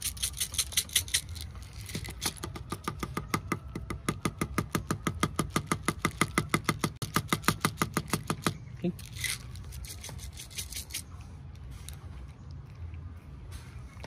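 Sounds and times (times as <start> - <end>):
kittens crunching dry kibble: 0.0 - 2.8, 7.0 - 14.0.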